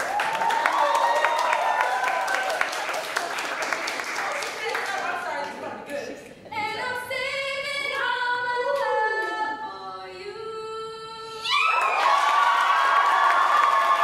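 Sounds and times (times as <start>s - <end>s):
audience applause and cheering: 0.0s - 5.2s, 11.5s - 14.0s
woman singing: 6.5s - 11.6s.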